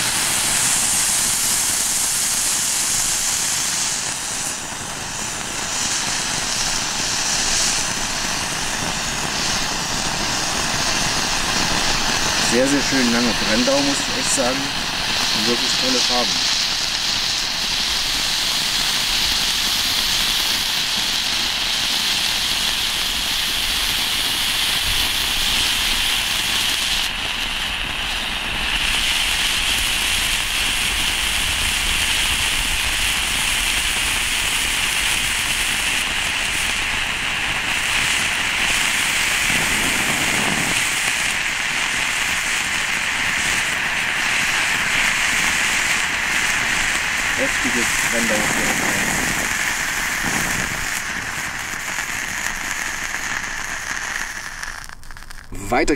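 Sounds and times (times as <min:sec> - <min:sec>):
fire fountains hissing: 0:00.0 - 0:55.9.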